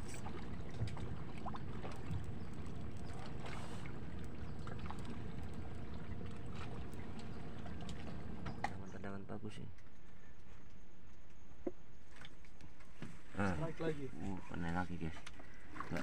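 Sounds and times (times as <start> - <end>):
faint clicks and knocks: 0.0 - 8.8
boat motor idling: 0.0 - 10.0.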